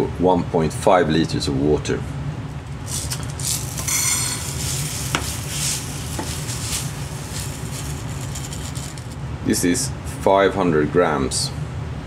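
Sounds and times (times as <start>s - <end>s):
granules pouring into glass bowl: 2.5s - 9.2s.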